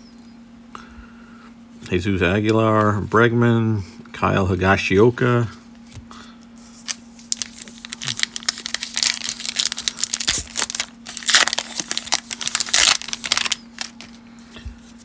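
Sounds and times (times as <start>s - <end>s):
wrapper crinkling and tearing: 6.8s - 14.2s.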